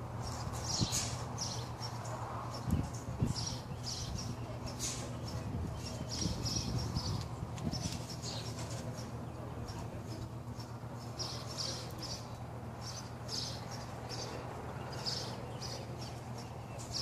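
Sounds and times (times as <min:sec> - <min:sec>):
small birds chirping: 0:00.1 - 0:17.0.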